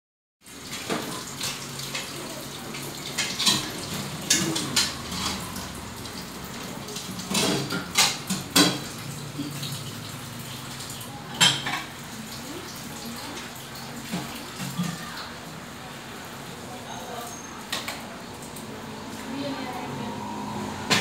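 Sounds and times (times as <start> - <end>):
dishes and utensils clattering: 0.6 - 9.8, 11.3 - 12.0.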